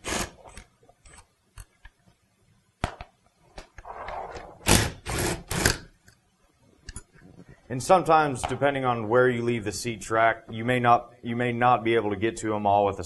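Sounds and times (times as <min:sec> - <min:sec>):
cordless drill spinning out bolt: 0:04.6 - 0:05.8.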